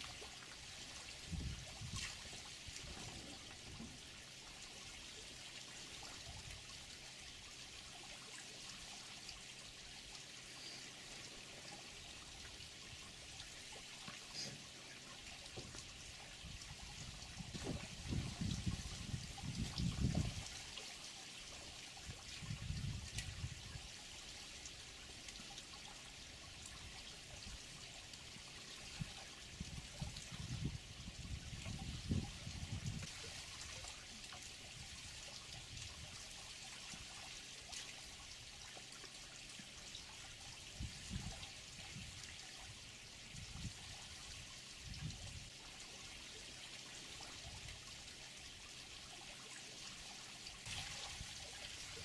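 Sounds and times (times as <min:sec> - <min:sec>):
water trickling: 0:00.0 - 0:52.0.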